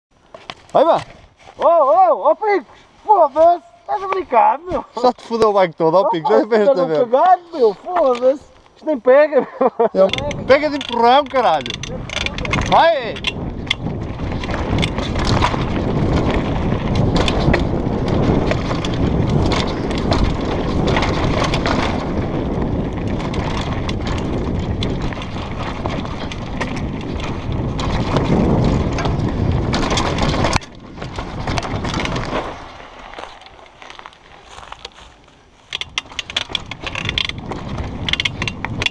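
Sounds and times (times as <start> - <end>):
bike rattling: 0.1 - 38.9
wind rushing over microphone: 9.8 - 38.9.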